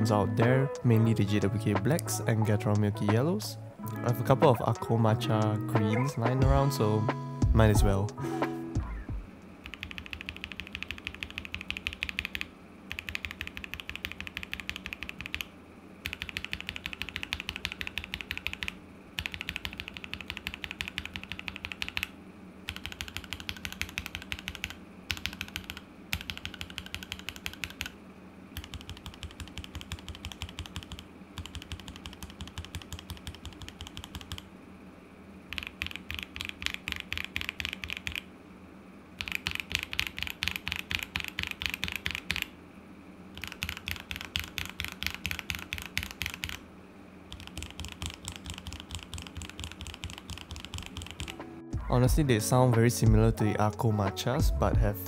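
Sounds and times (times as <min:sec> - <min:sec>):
mechanical keyboard typing: 0:09.6 - 0:22.1, 0:22.7 - 0:28.0, 0:28.6 - 0:34.5, 0:35.5 - 0:38.3, 0:39.2 - 0:42.5, 0:43.4 - 0:46.6, 0:47.3 - 0:51.4.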